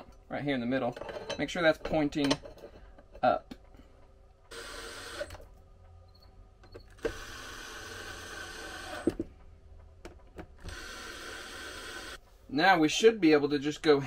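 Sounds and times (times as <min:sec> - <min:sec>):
cordless drill driving screws: 0:04.5 - 0:05.4, 0:06.9 - 0:09.2, 0:10.6 - 0:12.2.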